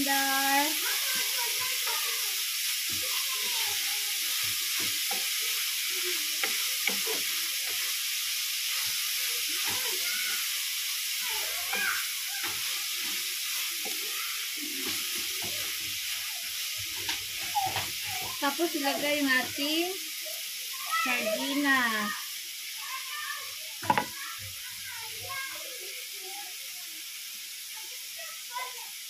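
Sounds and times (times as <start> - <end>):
food sizzling in oil: 0.0 - 29.0
wooden spatula stirring: 2.8 - 19.6.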